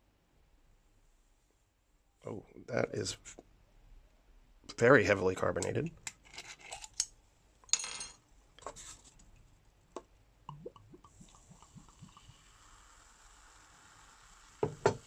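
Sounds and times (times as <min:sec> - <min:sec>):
fizzing hiss of bubbles: 0:10.5 - 0:15.0
soda pouring with plops: 0:10.5 - 0:15.0.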